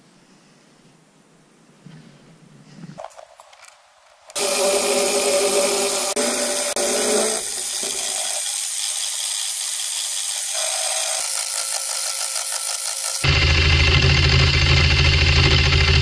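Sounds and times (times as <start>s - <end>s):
end mill cutting aluminium: 4.4s - 16.0s
milling machine hum: 4.4s - 16.0s.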